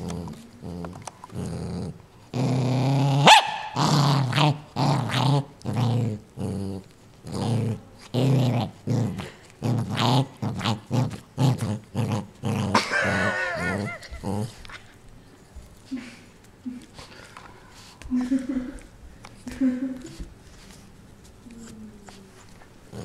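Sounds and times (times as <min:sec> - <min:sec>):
small dog growling: 0:00.0 - 0:14.7.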